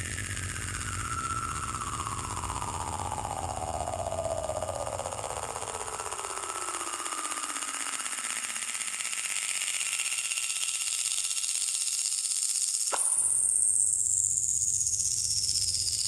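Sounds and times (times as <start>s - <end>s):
tone gliding downward: 0.0s - 7.3s
pulsing electronic buzz: 0.0s - 10.2s.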